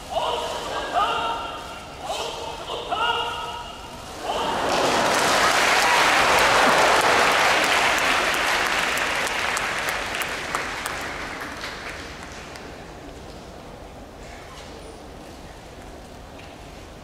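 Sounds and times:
crowd applauding: 4.2 - 12.8.

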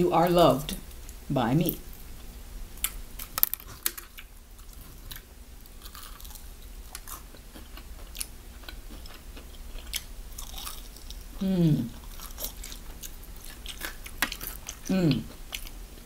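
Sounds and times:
chewing: 2.2 - 16.0
crispy chicken crunching: 2.8 - 15.8.

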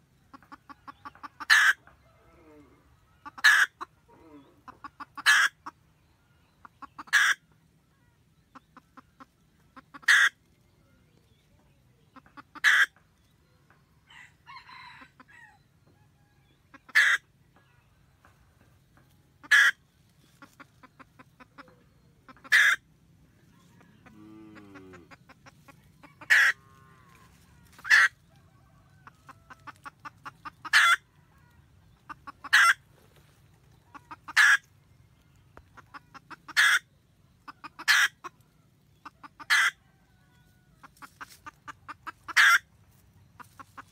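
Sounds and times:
hen cackling: 0.3 - 5.8, 6.6 - 7.5, 8.5 - 10.4, 12.1 - 13.0, 16.7 - 17.3, 19.4 - 34.8, 35.6 - 40.1, 40.7 - 43.9.

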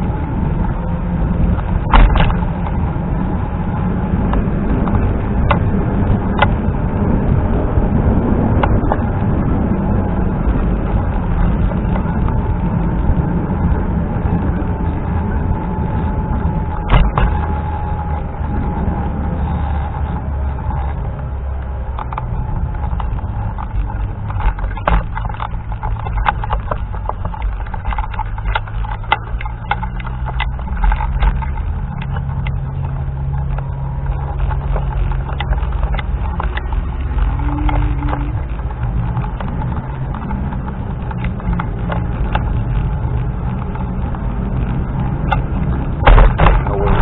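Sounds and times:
low hum: 0.0 - 47.0
wind buffeting microphone: 0.0 - 47.0
scooter wheels clicking and rattling: 10.1 - 47.0.

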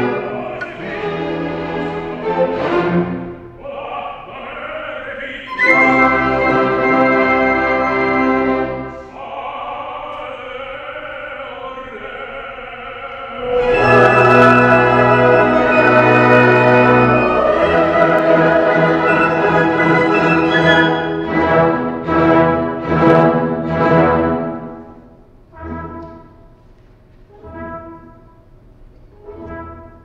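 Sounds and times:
orchestra playing with brass: 0.0 - 3.6, 5.5 - 9.1, 13.4 - 26.6, 27.3 - 30.0.

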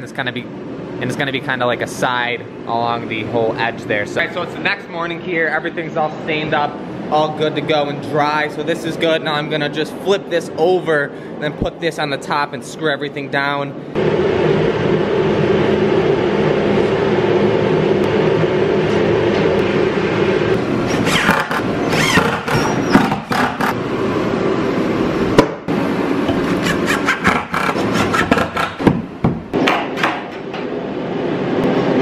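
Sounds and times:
forced-air heater humming: 0.0 - 32.0
drill driving screws: 20.9 - 23.8.

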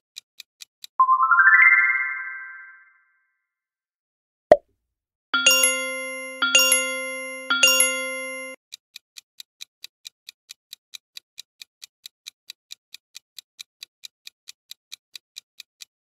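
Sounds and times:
clock-like timer ticking: 5.4 - 15.9.

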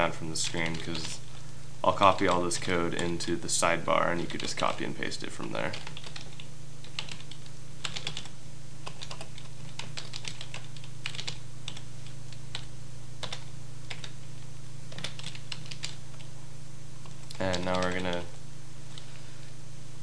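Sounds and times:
steady low hum: 0.0 - 20.0
keyboard typing: 0.4 - 1.2, 5.6 - 14.2, 14.9 - 16.3, 17.0 - 19.1.

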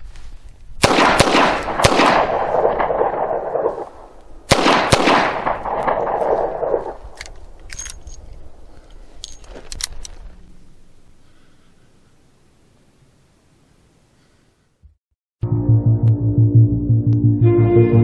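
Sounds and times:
revolver gunshots with echo: 0.8 - 7.1.

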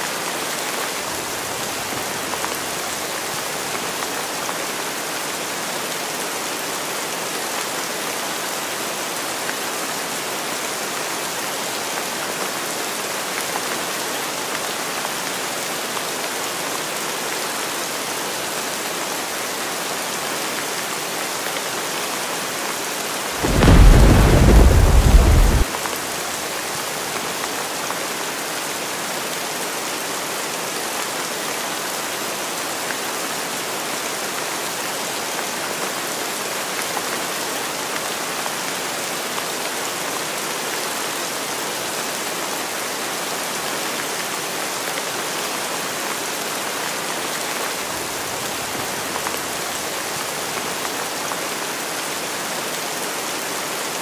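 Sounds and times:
heavy rain falling: 0.0 - 54.0
deep rumble of thunder: 23.4 - 25.7.

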